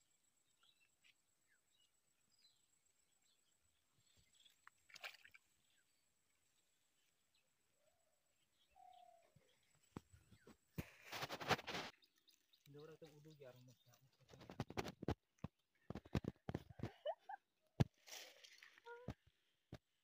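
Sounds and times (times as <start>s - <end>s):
faint bird chirps: 0.4s - 14.8s.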